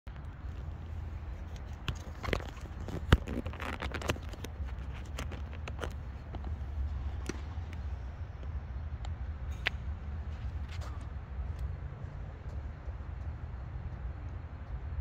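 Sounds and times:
low steady rumble: 0.1s - 15.0s
tennis balls struck and bouncing: 5.8s - 11.2s.

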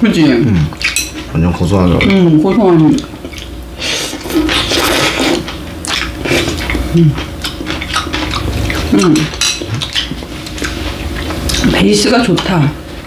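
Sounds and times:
chewing: 0.4s - 12.6s
noodle slurping: 3.3s - 11.6s.

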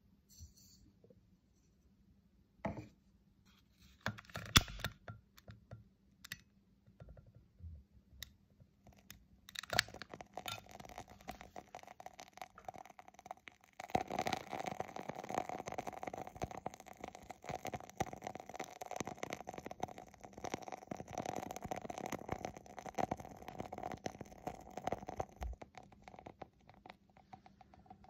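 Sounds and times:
wooden wick crackling: 8.9s - 28.0s.

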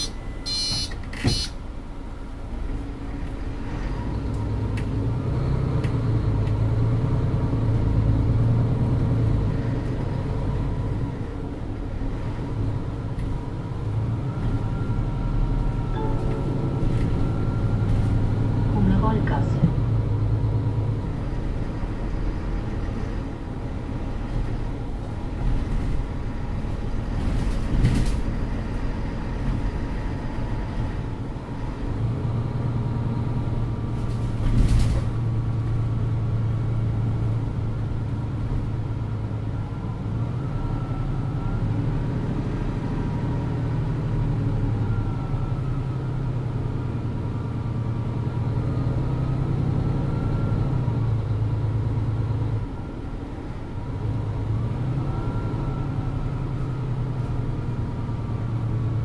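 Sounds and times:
bus engine drone: 0.0s - 59.0s.

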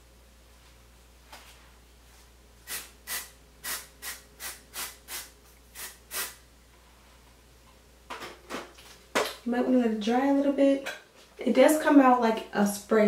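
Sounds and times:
aerosol spray hisses: 2.7s - 6.4s.

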